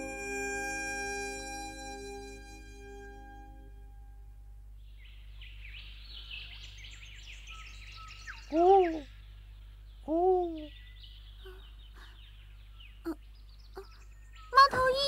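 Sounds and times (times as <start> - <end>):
birds chirping and twittering: 4.8 - 15.0.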